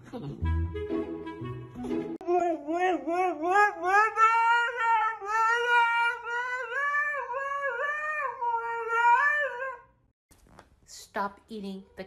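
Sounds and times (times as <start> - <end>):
dog howling: 2.2 - 10.0.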